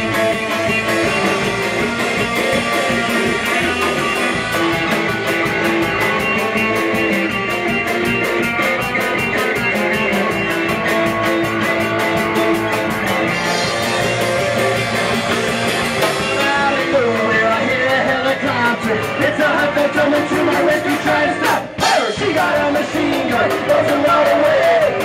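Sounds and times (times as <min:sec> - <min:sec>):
drums with fast cymbal beat: 0:00.0 - 0:25.0
electric guitar: 0:00.0 - 0:25.0
person singing: 0:16.1 - 0:25.0.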